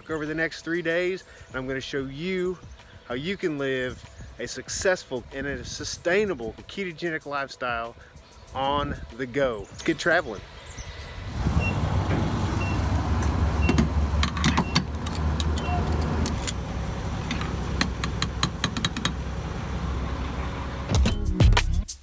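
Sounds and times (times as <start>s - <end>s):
car engine and road rumble: 10.4s - 21.3s
light clicks and rattles: 13.2s - 16.6s.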